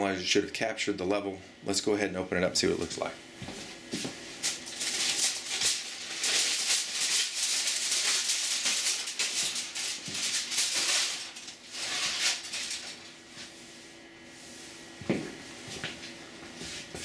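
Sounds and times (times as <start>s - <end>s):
aluminium foil crinkling: 4.4s - 13.2s.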